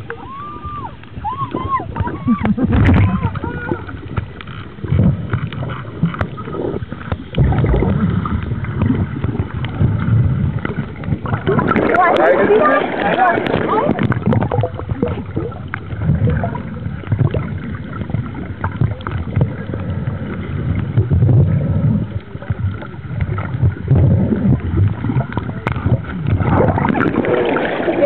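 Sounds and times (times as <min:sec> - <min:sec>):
small underwater clicks: 0:00.0 - 0:00.2, 0:00.8 - 0:28.0
low underwater rumbling: 0:00.0 - 0:28.0.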